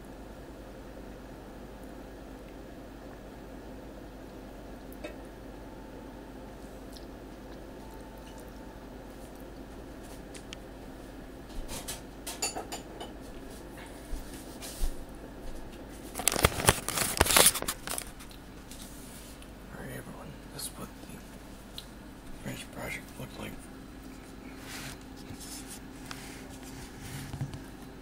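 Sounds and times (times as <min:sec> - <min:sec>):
steady low hum: 0:00.0 - 0:28.0
bowl and utensils clattering: 0:11.8 - 0:13.1.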